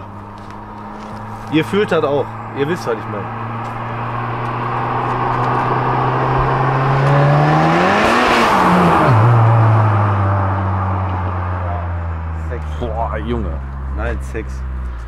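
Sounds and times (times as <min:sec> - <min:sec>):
car engine driving past: 0:00.0 - 0:15.0.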